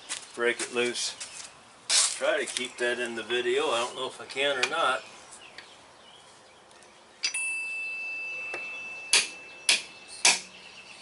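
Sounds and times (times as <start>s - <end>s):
high metallic ring: 7.2s - 10.3s
hammer striking metal: 8.5s - 10.5s.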